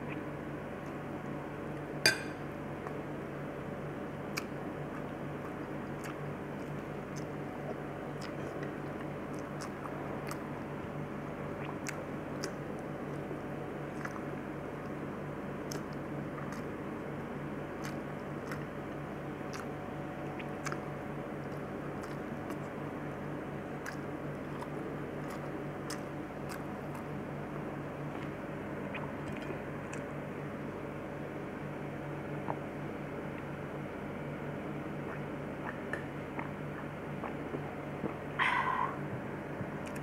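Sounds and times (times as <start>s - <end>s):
low background hum: 0.0s - 40.0s
person chewing: 4.3s - 10.7s, 11.5s - 15.0s, 15.6s - 16.8s, 17.8s - 18.8s, 19.4s - 22.8s, 23.8s - 27.2s, 28.1s - 30.1s, 35.0s - 39.0s.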